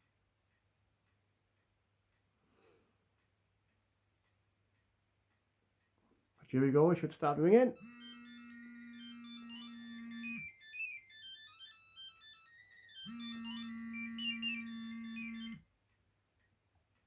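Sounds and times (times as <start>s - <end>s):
mobile phone ringtone: 7.8s - 15.6s.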